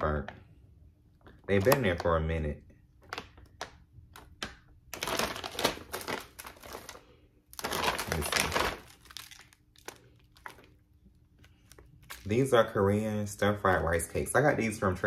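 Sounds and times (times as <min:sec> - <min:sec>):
plastic packaging crinkling: 0:02.9 - 0:12.8.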